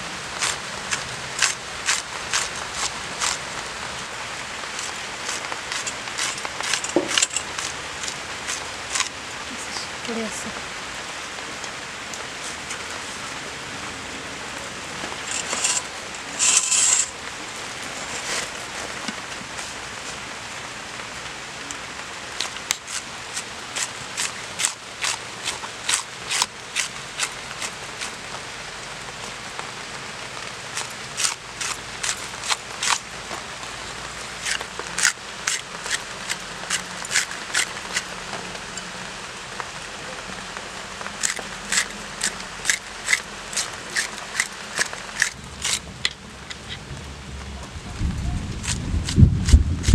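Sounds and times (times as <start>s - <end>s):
rustle: 0.0s - 49.9s
crisp knife cuts: 0.4s - 3.4s, 4.7s - 9.1s, 22.4s - 28.2s, 30.7s - 33.0s, 34.4s - 38.1s, 41.2s - 46.2s.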